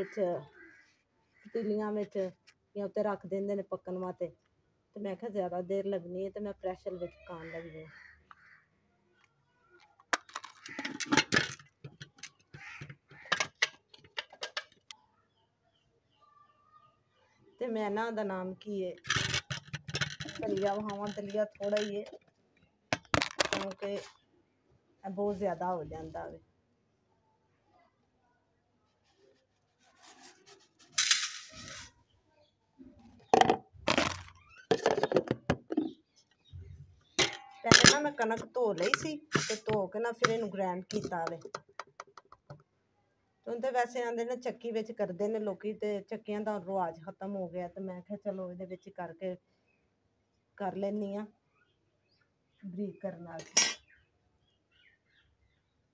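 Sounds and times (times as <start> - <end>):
metal cookware clinking: 37.2 - 41.3.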